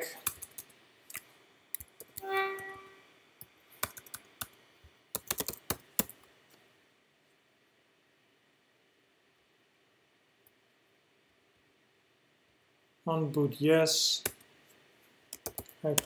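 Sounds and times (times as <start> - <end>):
keyboard typing: 0.2 - 2.8, 3.8 - 6.2, 15.3 - 16.0
steady pitched tone: 2.2 - 3.0.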